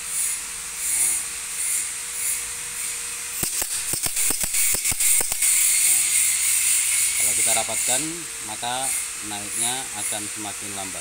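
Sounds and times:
compressed air hissing in pulses: 0.0 - 11.0
sharp clicks: 3.4 - 5.6.

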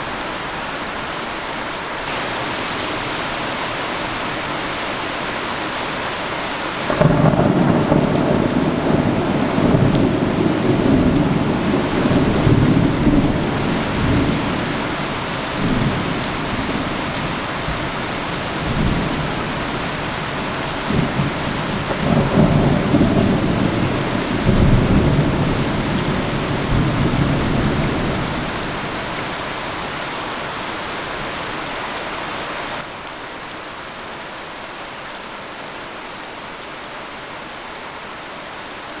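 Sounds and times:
heavy rain: 0.0 - 39.0
thunder rolling: 6.9 - 14.6.

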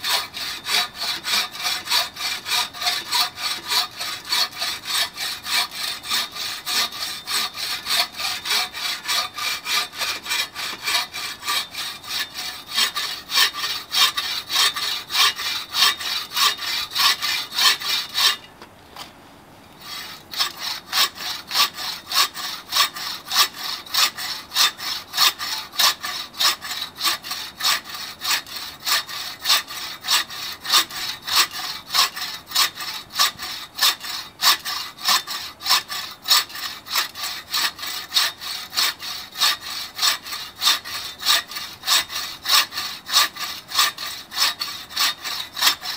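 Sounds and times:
saw rasping through log: 0.0 - 18.5, 19.8 - 45.9.

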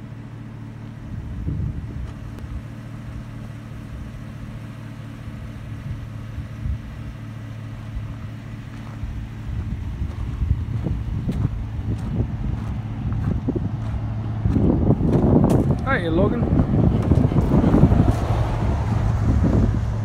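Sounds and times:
vehicle engine idling: 0.0 - 20.0
wind buffeting microphone: 1.0 - 2.7, 5.7 - 7.2, 7.9 - 20.0.

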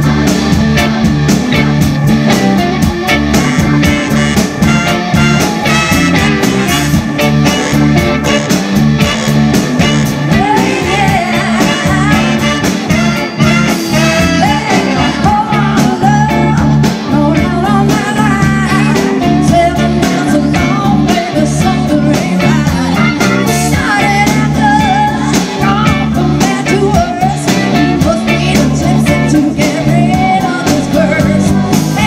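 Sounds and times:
live rock band playing: 0.0 - 32.0
woman singing: 10.0 - 32.0.

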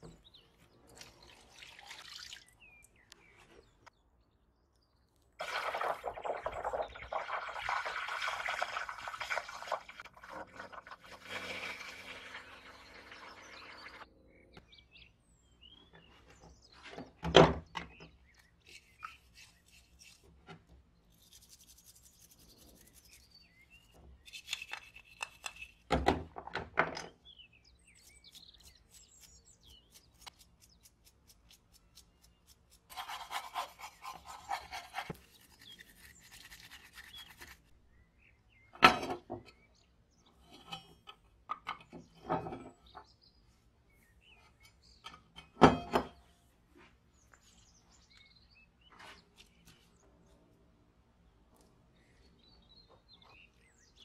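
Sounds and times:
brush scrubbing metal in water: 32.9 - 37.7.

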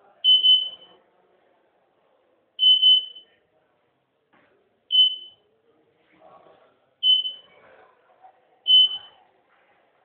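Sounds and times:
high-pitched electronic beeps: 0.3 - 0.9, 2.6 - 3.2, 4.9 - 5.4, 7.0 - 7.4, 8.7 - 9.1.

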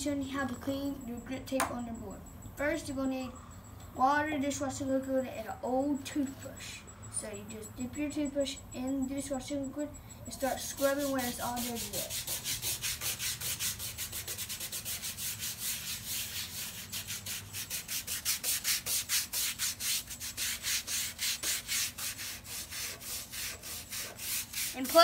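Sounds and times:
toothbrush scrubbing griptape: 10.4 - 25.0.

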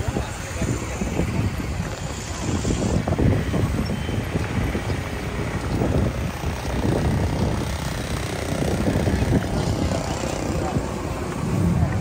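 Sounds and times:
rumble of street traffic: 0.0 - 12.0.

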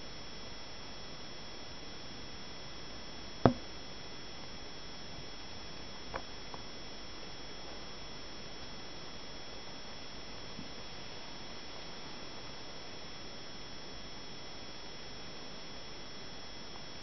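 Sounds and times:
sharp knock: 3.5 - 3.7.

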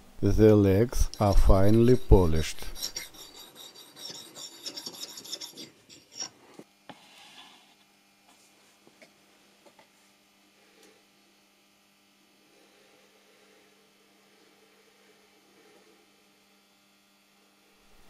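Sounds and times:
metal rasping on abrasive stone: 1.1 - 6.4.

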